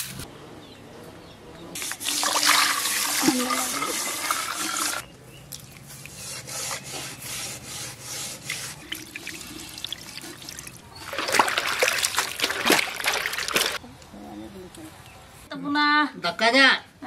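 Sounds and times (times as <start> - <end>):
hand washing rice in water: 1.8 - 5.0, 8.4 - 13.8
water pouring into steel bowl: 1.8 - 5.0
water splashing onto stone: 8.9 - 13.8.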